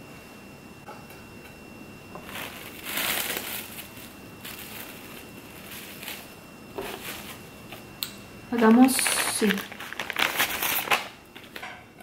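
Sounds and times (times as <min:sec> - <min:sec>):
plastic cling film crinkling: 0:02.2 - 0:07.8, 0:08.5 - 0:11.6.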